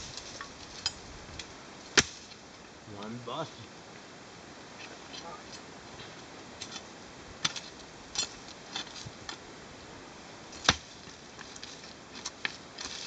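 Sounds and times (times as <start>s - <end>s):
pick striking dirt and roots: 0.0s - 3.2s, 6.0s - 9.4s, 10.5s - 13.0s.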